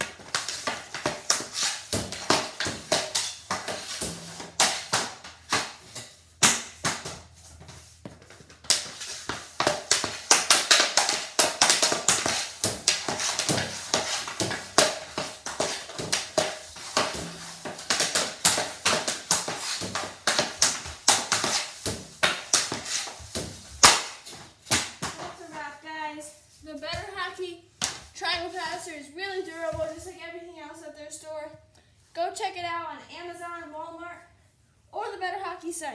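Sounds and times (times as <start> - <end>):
hockey pucks clacking on hard floor: 0.0 - 25.7.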